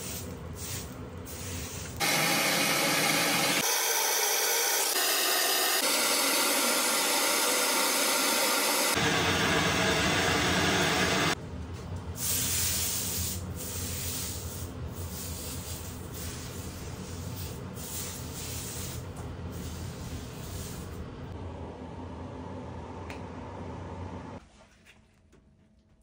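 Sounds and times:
gas torch flame: 0.0s - 11.4s.

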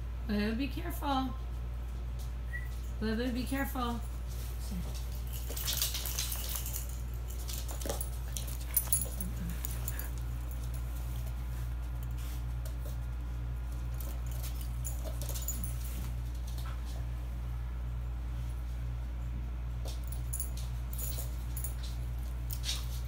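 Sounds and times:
paws and tags clicking and jingling: 3.9s - 17.2s, 19.8s - 23.0s.

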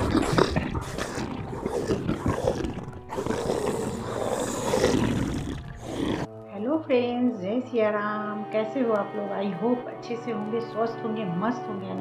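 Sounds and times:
rough animal-like roar: 0.0s - 6.3s.

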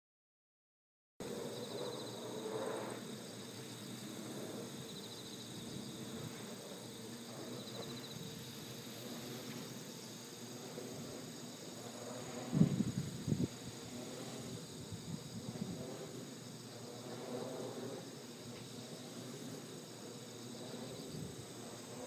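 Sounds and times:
insects trilling in pulsed bursts: 1.2s - 22.0s
steady outdoor background hiss: 1.2s - 22.0s.

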